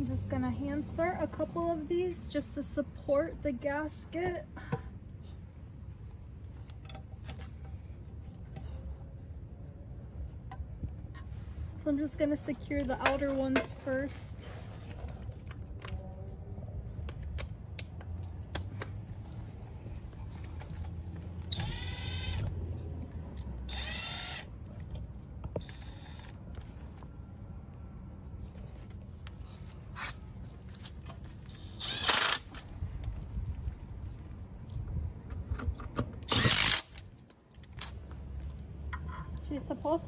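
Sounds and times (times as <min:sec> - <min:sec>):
cordless power driver whirring: 0:21.5 - 0:22.5, 0:23.7 - 0:24.5, 0:31.5 - 0:32.5, 0:36.3 - 0:36.9.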